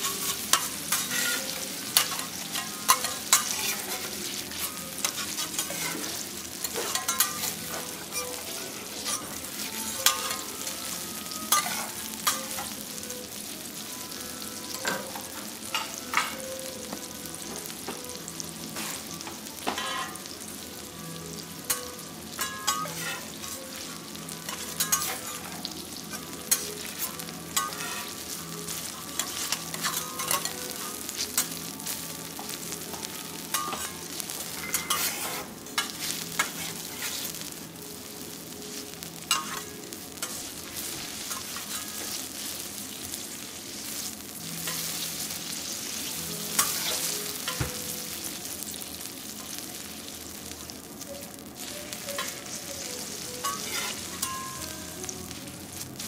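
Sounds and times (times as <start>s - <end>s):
metal spatulas scraping hot plate: 0.0s - 10.6s, 11.5s - 12.7s, 19.7s - 20.2s, 21.7s - 23.9s, 24.5s - 28.2s, 28.9s - 31.5s, 34.6s - 37.3s, 39.3s - 42.2s, 46.5s - 47.6s, 53.4s - 54.6s
food sizzling on griddle: 0.0s - 56.0s.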